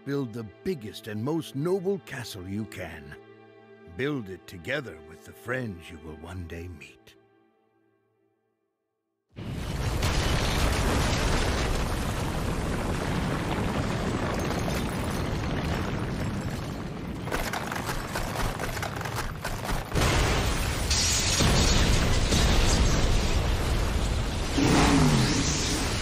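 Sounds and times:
rumble of explosions and crashing: 0:09.4 - 0:26.0
loud blast: 0:19.9 - 0:26.0.

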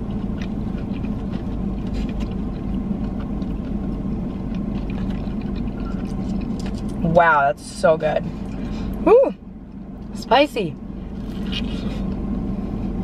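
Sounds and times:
soft chewing clicks: 0:00.0 - 0:07.0
car engine hum inside cabin: 0:00.0 - 0:13.0.

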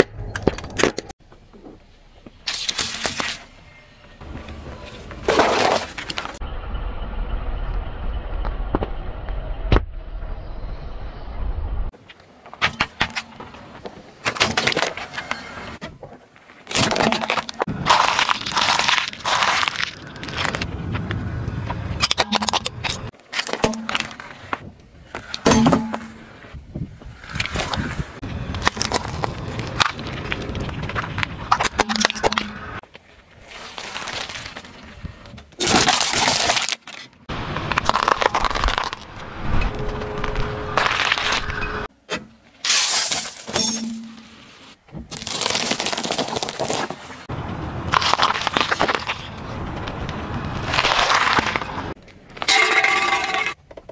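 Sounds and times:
tyre crunching objects on asphalt: 0:16.6 - 0:23.2, 0:28.2 - 0:34.9, 0:35.6 - 0:41.6, 0:45.1 - 0:52.0
tyre squashing pastry: 0:16.8 - 0:20.7, 0:37.5 - 0:39.1.

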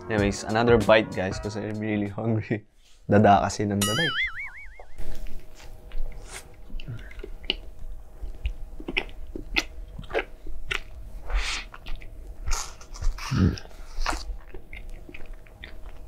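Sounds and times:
person biting and chewing: 0:05.3 - 0:16.0.

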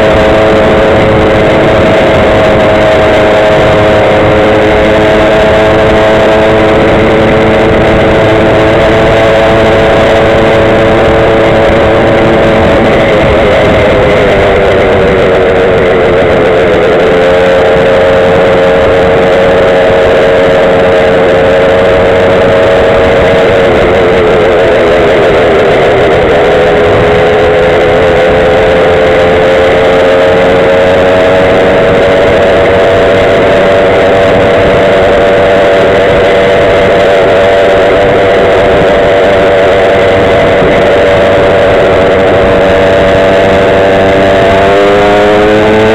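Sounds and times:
small two-stroke engine running: 0:00.0 - 0:45.9
wind and road noise: 0:00.0 - 0:45.9.

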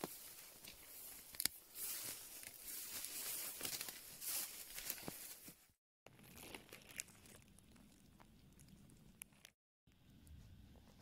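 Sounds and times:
rustling through grass and undergrowth: 0:00.0 - 0:07.6.

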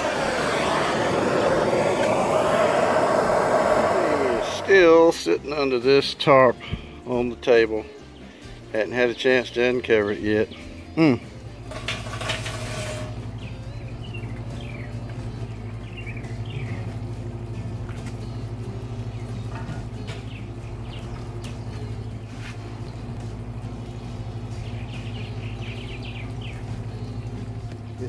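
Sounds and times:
steady low hum: 0:00.0 - 0:05.9, 0:10.6 - 0:28.0
small birds chirping: 0:07.7 - 0:11.7, 0:13.2 - 0:28.0.

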